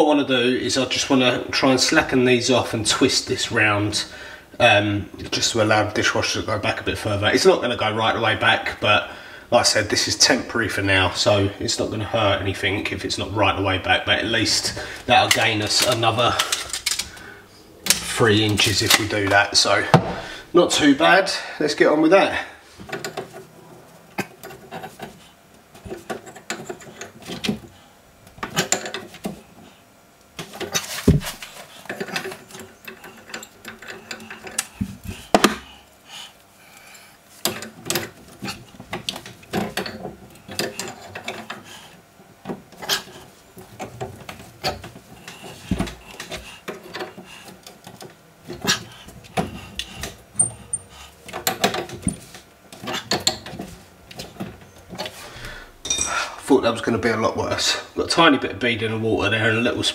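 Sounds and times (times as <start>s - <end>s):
spanner clicking and scraping on pipe: 25.8s - 27.6s, 30.4s - 35.4s, 37.4s - 41.9s.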